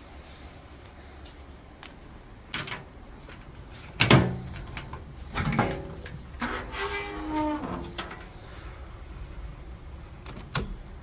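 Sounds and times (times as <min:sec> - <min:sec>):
metal cabinet door clunking: 0:04.0 - 0:08.3
short squeak: 0:06.4 - 0:08.0.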